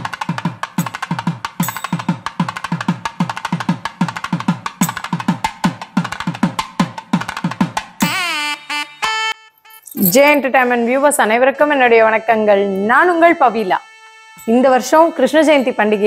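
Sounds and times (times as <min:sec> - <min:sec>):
fast drum beat: 0:00.0 - 0:08.2.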